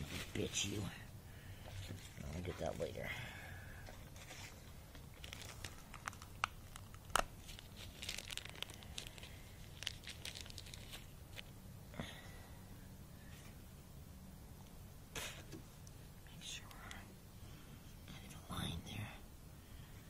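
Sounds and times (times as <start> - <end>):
plastic bag crinkling and tearing: 4.2 - 11.5.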